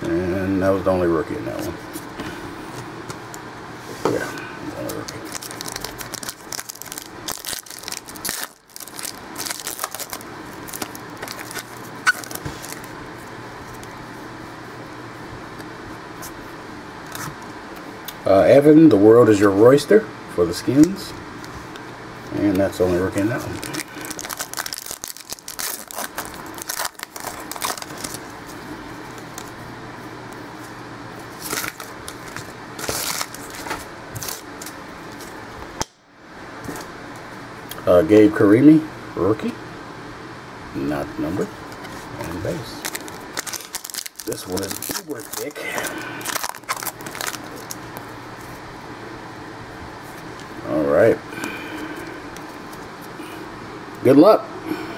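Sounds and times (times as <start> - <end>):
foil wrapper tearing and crinkling: 4.8 - 12.9, 23.1 - 28.3, 31.4 - 34.5, 42.4 - 48.0
cards clicking and rustling: 23.2 - 28.2, 31.4 - 35.3, 42.2 - 47.8.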